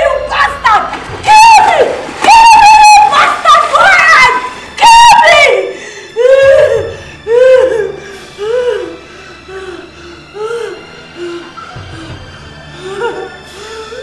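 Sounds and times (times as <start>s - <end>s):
woman screaming: 0.0s - 7.9s
splashing in water: 0.8s - 4.6s
woman wailing cries: 2.3s - 11.5s, 12.8s - 14.0s.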